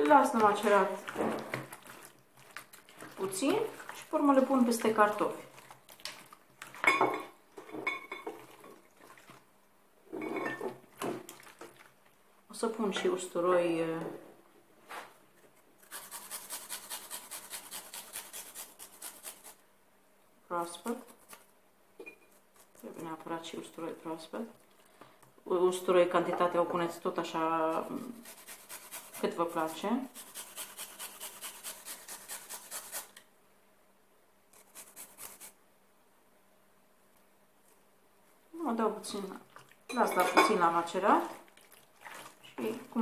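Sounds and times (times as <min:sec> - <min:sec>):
garlic grated on metal grater: 0:15.8 - 0:19.6, 0:27.7 - 0:33.2.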